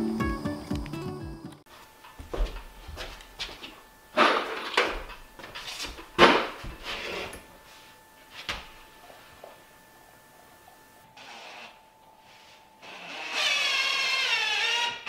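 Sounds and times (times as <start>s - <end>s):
footsteps on wooden floor: 2.1s - 3.8s, 4.9s - 7.3s.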